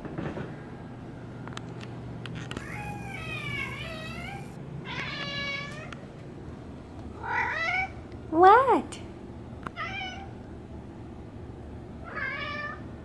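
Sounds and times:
cat meowing: 0:02.5 - 0:05.8.

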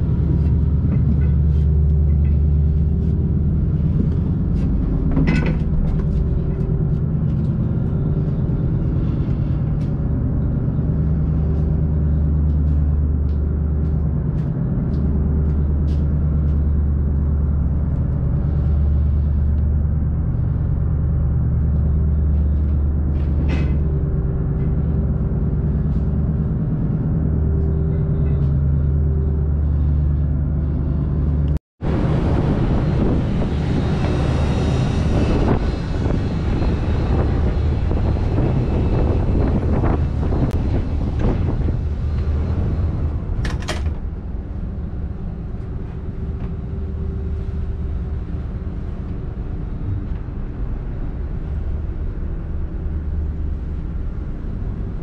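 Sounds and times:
engine machinery deep hum: 0:00.0 - 0:55.0.

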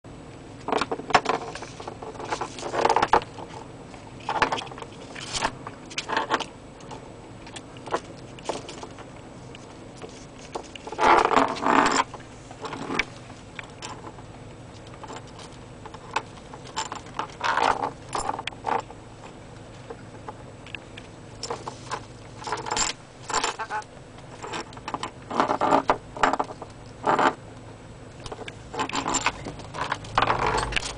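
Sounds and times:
shell rattling on plastic dashboard: 0:21.4 - 0:27.4, 0:28.2 - 0:30.9.

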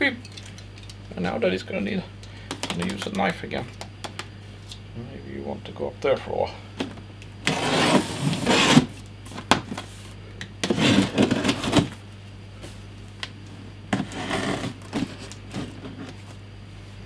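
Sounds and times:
low steady hum: 0:00.0 - 0:17.0
knife slicing cardboard box: 0:07.5 - 0:08.9.

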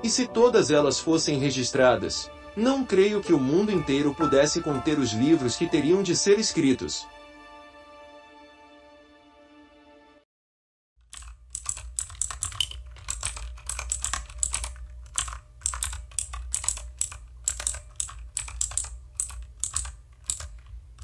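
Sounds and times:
keyboard key clicks: 0:11.1 - 0:20.7.

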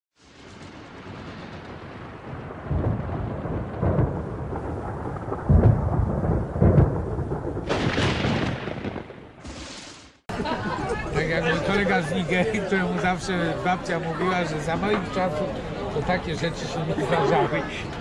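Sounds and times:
thunder rolling: 0:00.2 - 0:10.2.

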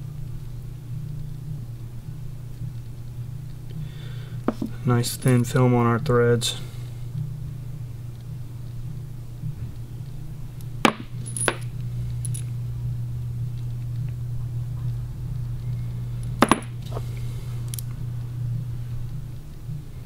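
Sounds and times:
steady low hum: 0:00.0 - 0:20.0
metal bolts clinking: 0:10.9 - 0:11.7.

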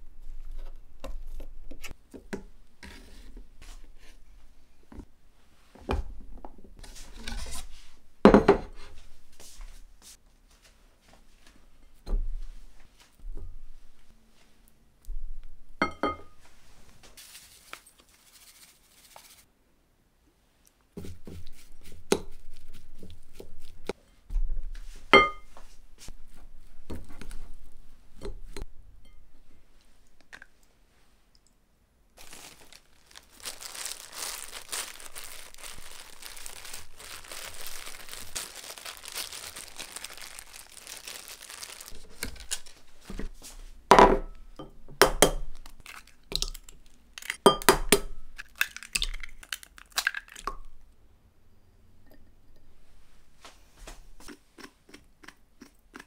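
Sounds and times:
plastic gloves crinkling: 0:17.1 - 0:19.4, 0:32.2 - 0:43.4, 0:45.5 - 0:47.4, 0:48.3 - 0:50.5.

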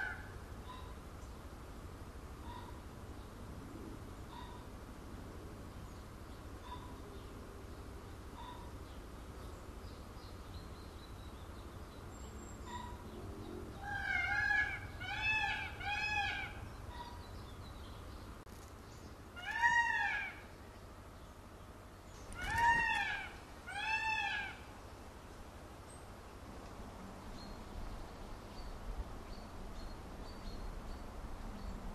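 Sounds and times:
peafowl calling: 0:00.0 - 0:01.0, 0:12.6 - 0:13.0, 0:13.7 - 0:17.3, 0:19.3 - 0:20.6, 0:22.2 - 0:24.8.

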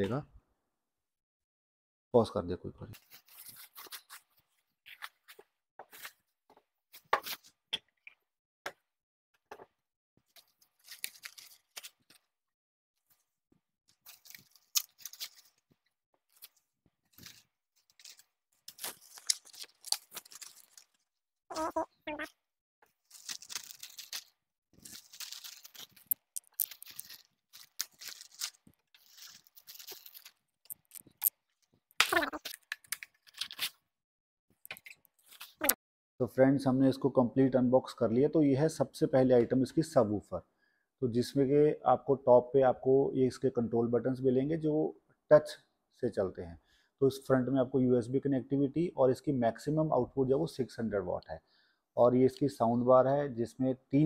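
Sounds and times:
plastic packaging rustling: 0:17.1 - 0:21.1, 0:23.0 - 0:31.3
plastic bags crinkling: 0:17.2 - 0:21.0, 0:23.0 - 0:31.3.

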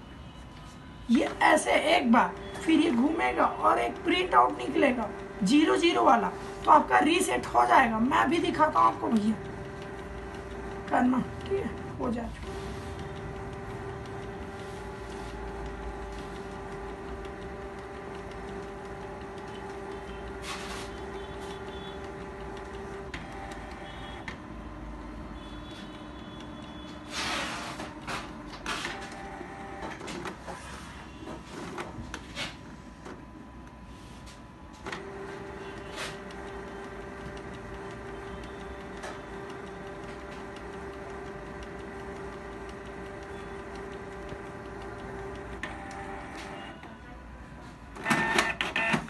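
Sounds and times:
printer mechanism whirring: 0:00.0 - 0:49.0
printer clicks and knocks: 0:48.0 - 0:49.0.

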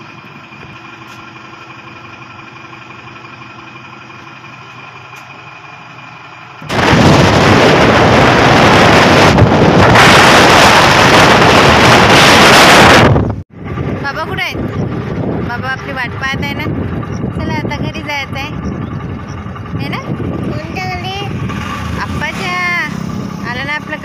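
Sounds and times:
motorcycle engine idling: 0:00.0 - 0:06.7, 0:13.5 - 0:24.0
wind rushing over microphone: 0:06.6 - 0:23.8.

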